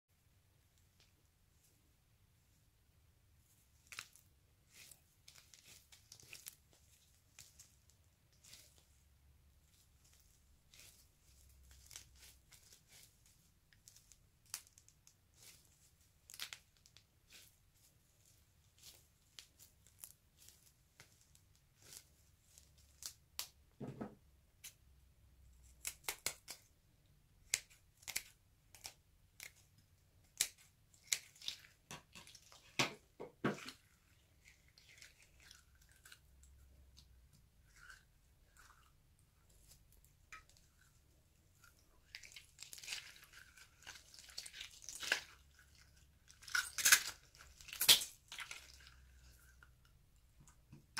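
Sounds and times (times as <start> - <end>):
stress balls squeezed sticky crackles: 33.6 - 50.9.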